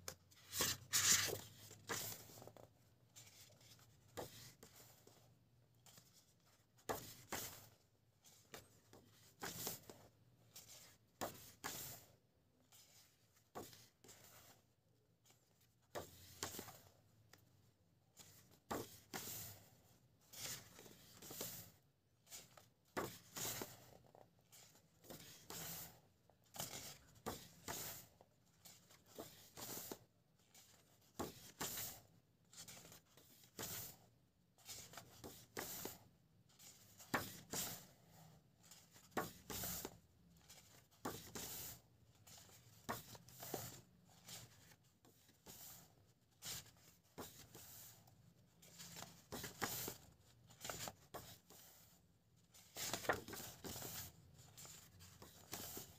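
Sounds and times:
book pages turning: 0.0s - 2.6s, 22.3s - 34.0s, 48.6s - 51.9s, 52.5s - 55.9s.

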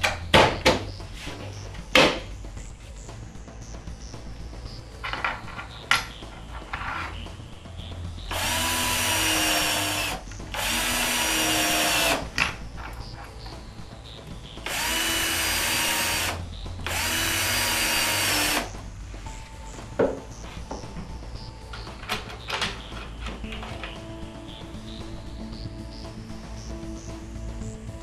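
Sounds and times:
cordless drill driving screws: 8.3s - 12.2s, 14.7s - 18.7s.

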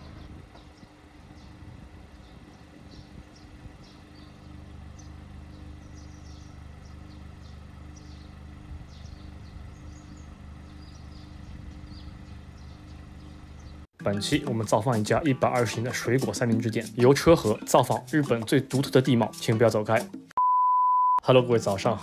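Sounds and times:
car engine humming: 0.0s - 13.9s.

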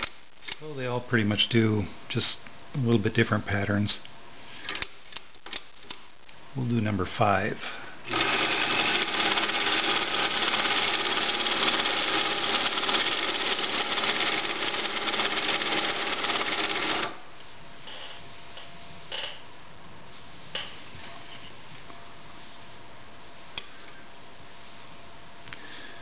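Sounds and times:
sewing machine clattering: 8.1s - 17.2s.

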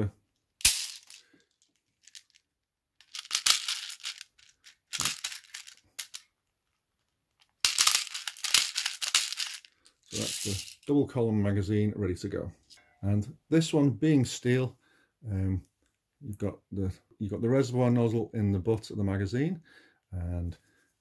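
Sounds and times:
plastic bbs rattling into magazine: 0.6s - 2.4s, 3.0s - 10.9s.

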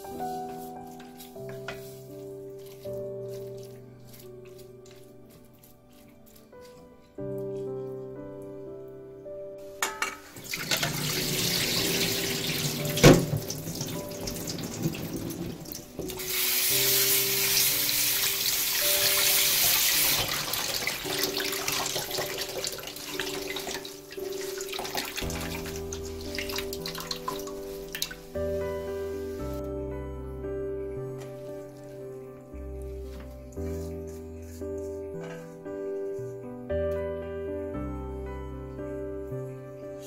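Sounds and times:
hands rinsing seaweed: 0.0s - 6.9s, 10.2s - 29.6s
light piano music: 0.0s - 40.0s
tap water running into colander: 10.2s - 28.4s.

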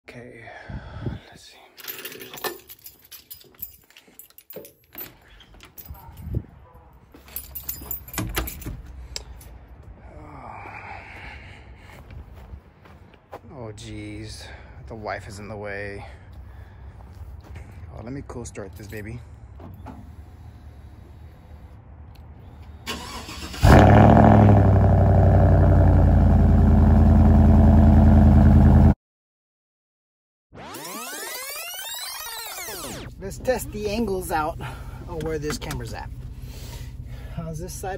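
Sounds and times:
keys jangling: 1.8s - 6.5s, 7.1s - 9.6s
handling clicks and knocks: 7.2s - 9.5s
engine cranking: 22.9s - 24.1s.

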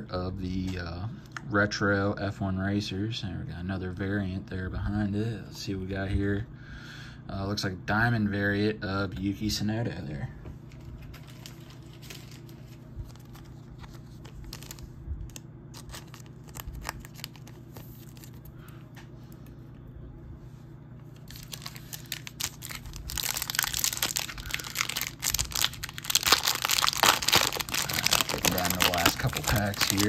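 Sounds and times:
card pack wrapper crinkling and tearing: 10.7s - 18.6s, 21.2s - 30.0s.

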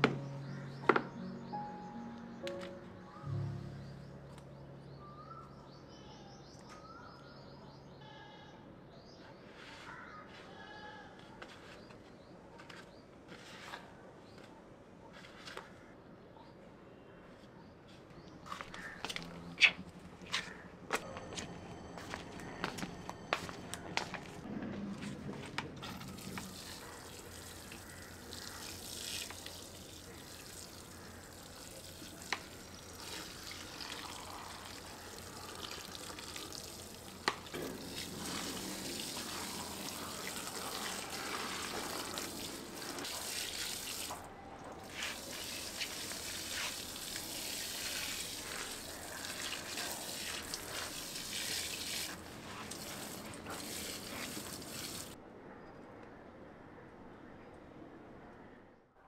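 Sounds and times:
tap water running into sink: 25.9s - 44.2s, 45.0s - 55.2s.

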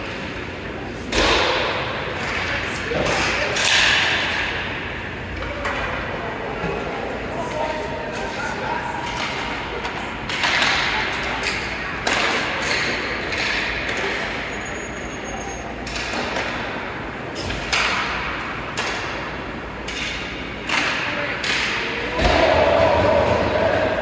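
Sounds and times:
hockey sticks and puck knocking: 1.1s - 4.7s, 9.0s - 14.3s, 15.9s - 16.7s, 17.5s - 24.0s.

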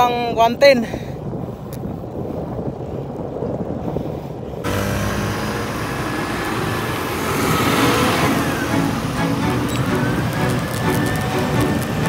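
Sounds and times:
road noise: 0.0s - 12.0s
wind rumbling on microphone: 0.0s - 12.0s
motor traffic passing: 4.6s - 12.0s.

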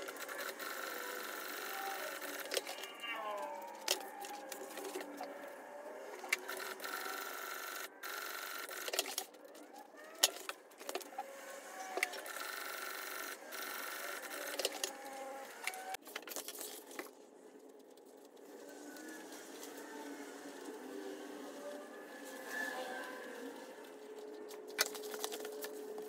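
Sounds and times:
sewing machine stitching: 0.0s - 2.9s, 6.2s - 9.4s, 11.9s - 16.0s.

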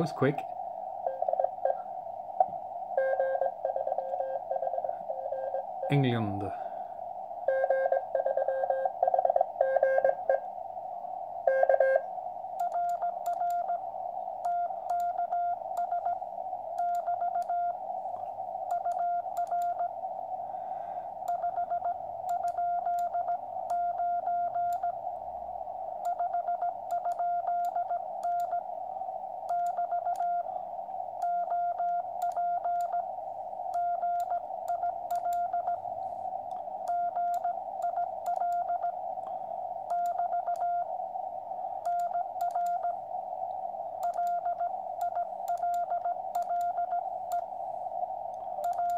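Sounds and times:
low morse signal: 0.0s - 48.9s
receiver hiss: 0.0s - 48.9s
morse code tone: 7.5s - 10.4s, 11.5s - 13.8s, 26.1s - 28.6s, 36.9s - 39.0s, 39.9s - 40.9s.

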